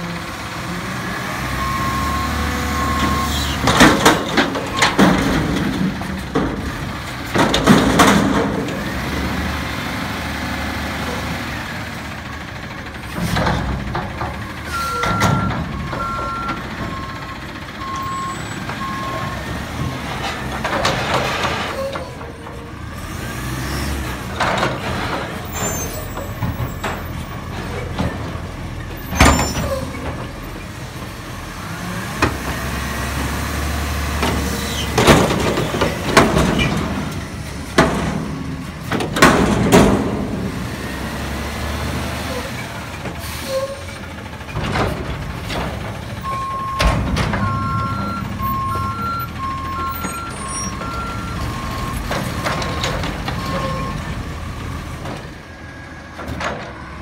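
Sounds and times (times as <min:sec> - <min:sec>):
truck engine revving: 0:22.7 - 0:55.6.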